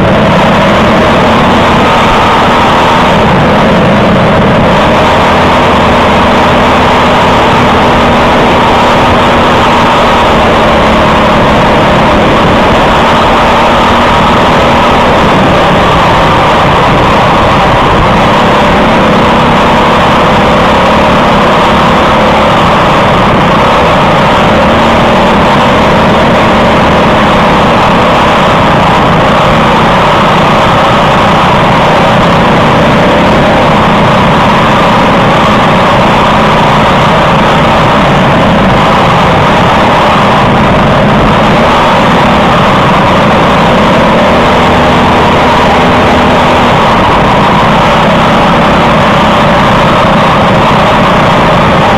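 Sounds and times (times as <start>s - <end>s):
kart engine running hard: 0.0s - 51.9s.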